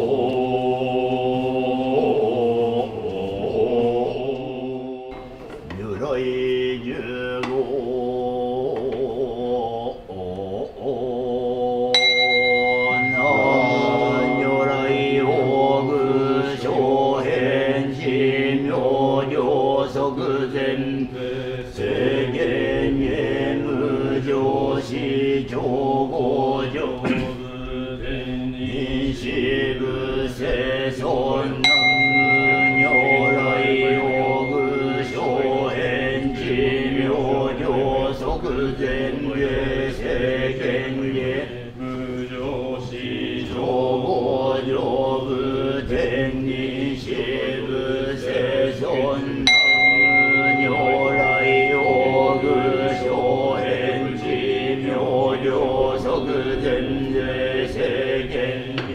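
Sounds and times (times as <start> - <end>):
monks chanting: 0.0 - 58.9
bell ringing: 12.0 - 22.2, 31.6 - 39.6, 49.4 - 58.6.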